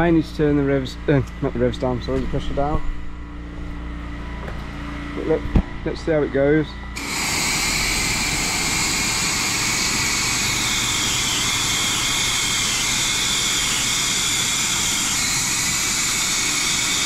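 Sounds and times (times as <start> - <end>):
pressure washer spray hiss: 7.0 - 14.6.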